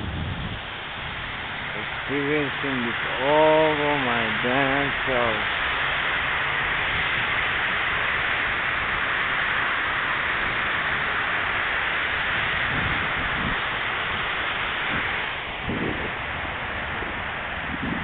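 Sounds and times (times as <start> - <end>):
fountain water splashing: 0.0 - 18.0.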